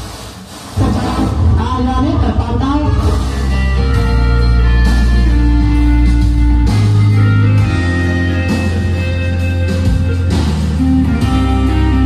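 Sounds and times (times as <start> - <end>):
music over loudspeakers: 0.0 - 12.0
strong steady bass: 0.8 - 12.0.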